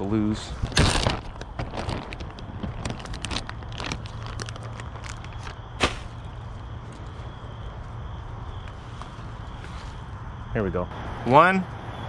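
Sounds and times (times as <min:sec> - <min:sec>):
plastic bag crinkling: 0:00.6 - 0:06.3.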